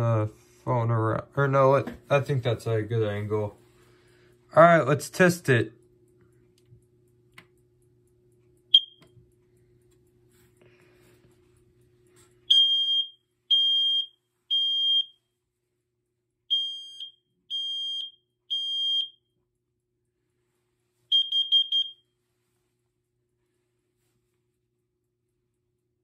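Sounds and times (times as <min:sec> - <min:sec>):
loud alarm beeps: 0:08.7 - 0:09.0, 0:12.5 - 0:15.1, 0:16.5 - 0:19.2, 0:21.1 - 0:22.0
quick short alarm beeps: 0:08.7 - 0:09.0, 0:21.1 - 0:22.0.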